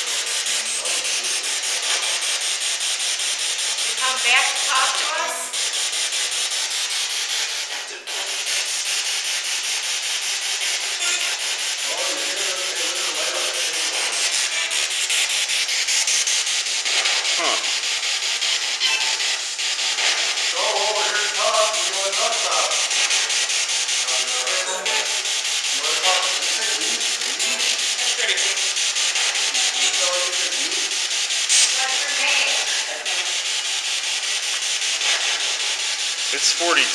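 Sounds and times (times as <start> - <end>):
chopped radio static: 11.0 - 11.4, 36.3 - 36.9
snatches of broadcast sound: 36.3 - 36.9.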